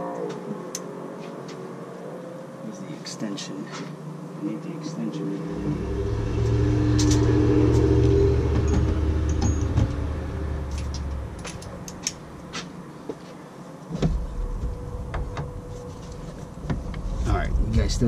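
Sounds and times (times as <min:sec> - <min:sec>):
steady low hum: 0:02.6 - 0:18.0.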